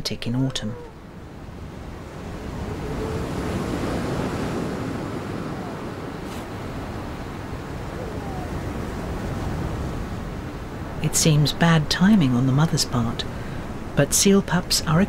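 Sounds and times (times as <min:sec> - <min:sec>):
surf on pebble shore: 0:00.4 - 0:15.0.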